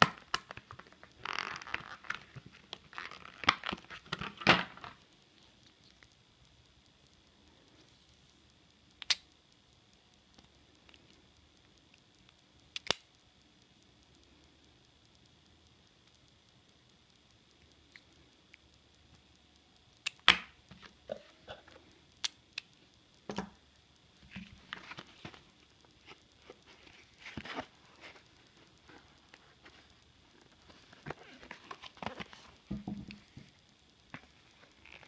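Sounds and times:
plastic blister pack crinkling: 0.0 - 6.1, 24.2 - 35.0.

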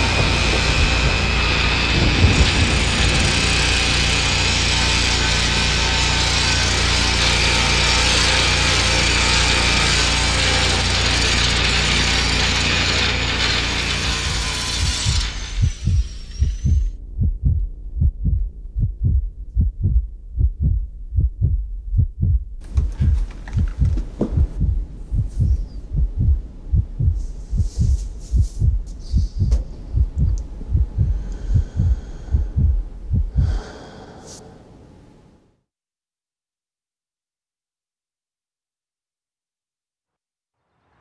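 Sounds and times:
heartbeat thumps: 14.1 - 33.7.

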